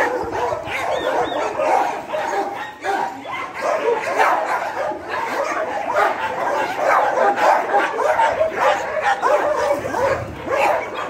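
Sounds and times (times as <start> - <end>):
dogs barking and yipping: 0.0 - 11.0.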